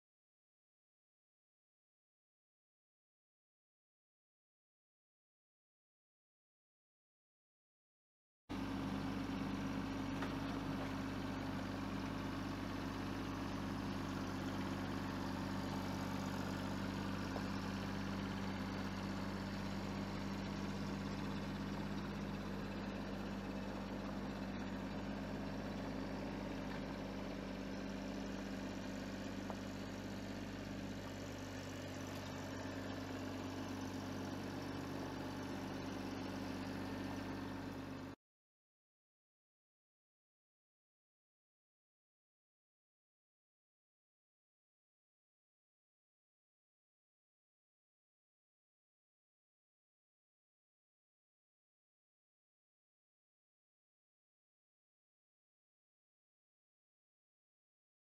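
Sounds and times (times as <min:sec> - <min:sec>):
tractor diesel engine running: 0:08.5 - 0:38.2.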